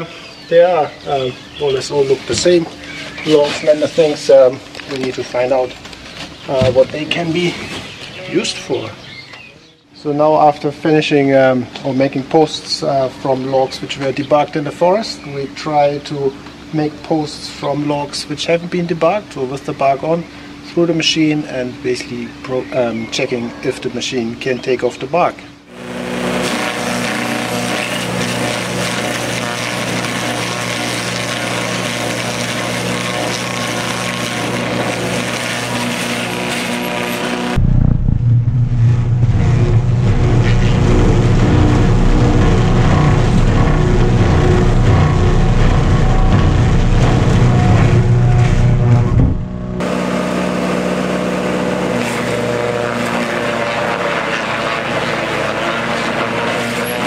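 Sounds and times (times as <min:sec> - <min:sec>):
tractor engine under load: 0:39.2 - 0:49.9.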